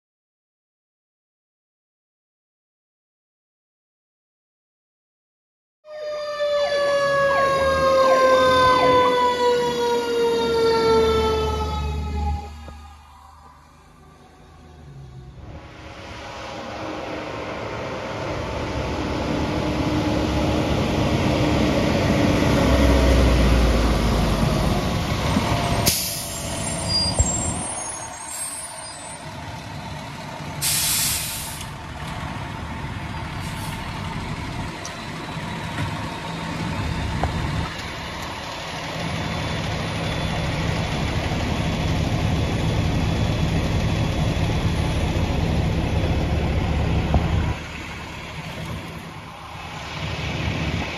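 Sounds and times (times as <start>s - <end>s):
diesel truck engines running: 6.6s - 50.9s
heavy engine idling: 12.5s - 50.9s
air brake hiss: 25.8s - 29.2s, 30.6s - 31.8s.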